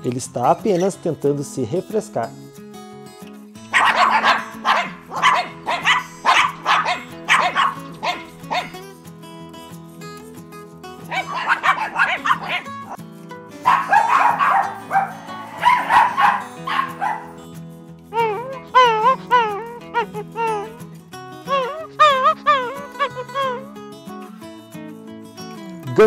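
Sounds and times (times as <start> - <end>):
background music: 0.0 - 26.0
dog barking: 3.7 - 8.8, 11.1 - 13.0, 13.6 - 17.4.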